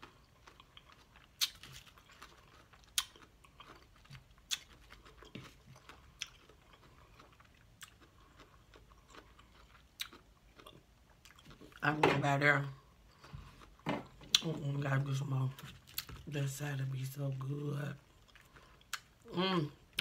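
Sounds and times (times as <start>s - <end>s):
chewing lettuce: 0.0s - 11.8s.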